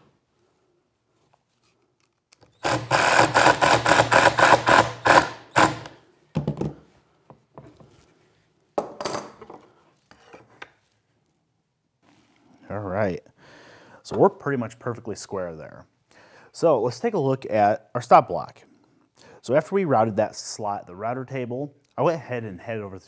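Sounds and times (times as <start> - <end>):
cordless driver whirring: 2.5 - 6.0.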